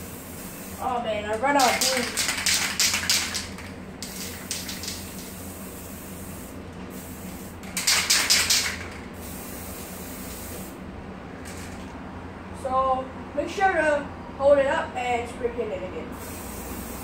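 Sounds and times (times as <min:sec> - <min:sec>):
spray paint can hissing: 0:00.0 - 0:10.7, 0:16.2 - 0:17.0.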